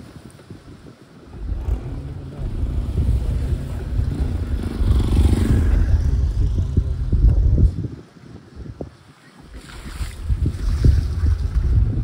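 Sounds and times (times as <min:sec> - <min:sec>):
wind buffeting microphone: 0:00.0 - 0:12.0
motorcycle passing: 0:01.4 - 0:07.6.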